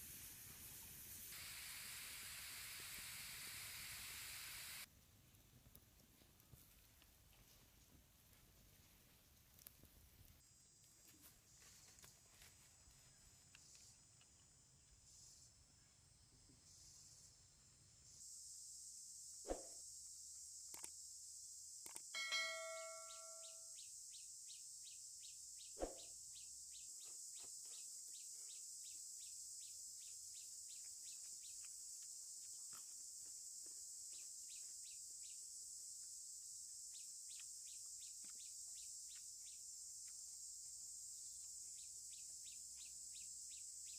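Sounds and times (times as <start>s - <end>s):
insect chirps: 0.0s - 4.9s, 8.8s - 43.9s
high-pitched insect drone: 16.6s - 43.9s
sharp clicks: 20.7s - 21.0s, 21.8s - 22.1s
brief ringing call: 22.2s - 23.6s.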